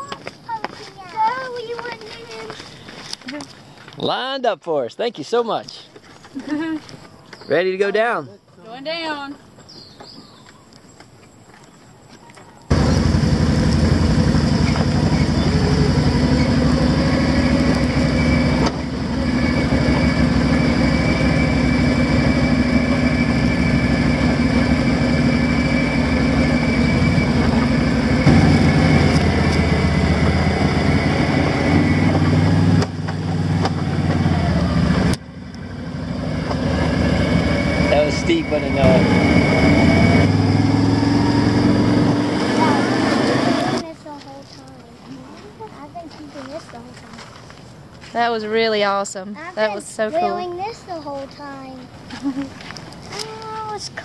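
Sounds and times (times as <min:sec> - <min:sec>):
atv engine running: 0:12.7 - 0:44.4.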